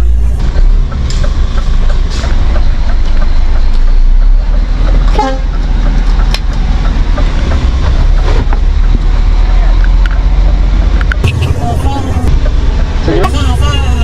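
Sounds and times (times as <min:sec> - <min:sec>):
diesel truck engine rumbling: 0:00.0 - 0:14.0
click: 0:01.1 - 0:06.6.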